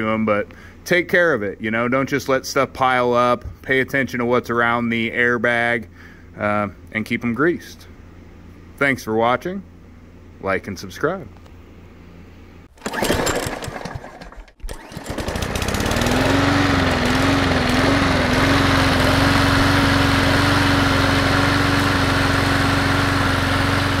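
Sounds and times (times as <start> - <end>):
small lawn mower engine: 12.7 - 24.0.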